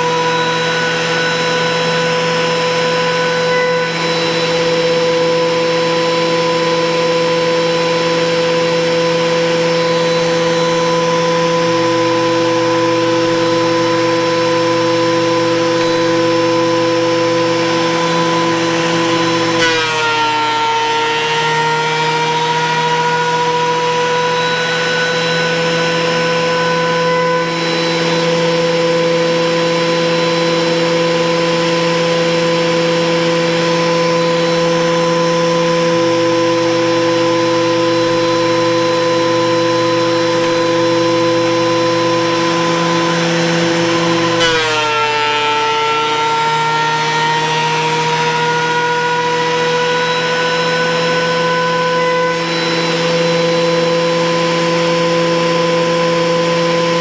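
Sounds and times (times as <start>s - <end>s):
thickness planer whining: 0.0s - 57.0s.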